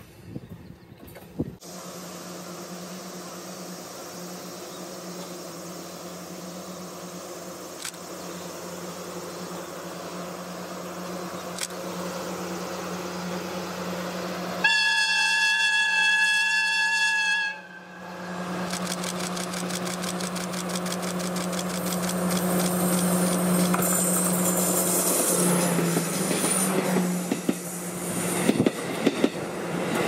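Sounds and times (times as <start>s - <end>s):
diesel locomotive engine drone: 0.0s - 30.0s
locomotive horn: 14.6s - 18.5s.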